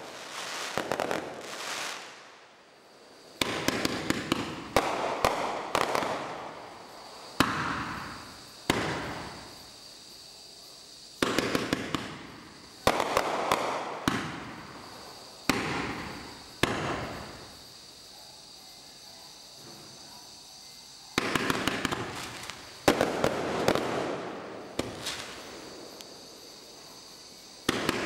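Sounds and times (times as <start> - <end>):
crackling firework glitter: 0.0 - 18.1, 19.3 - 28.0
firework shells bursting: 11.2 - 17.5, 21.2 - 26.2, 27.6 - 28.0.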